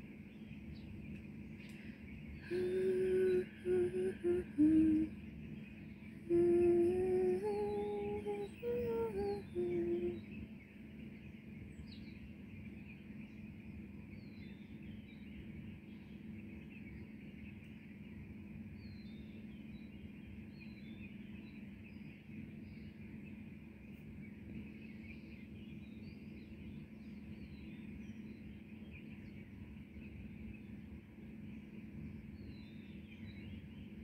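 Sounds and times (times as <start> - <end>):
faint bird chirps: 0.0 - 34.0
person humming a slow tune: 2.4 - 5.2, 6.2 - 10.4.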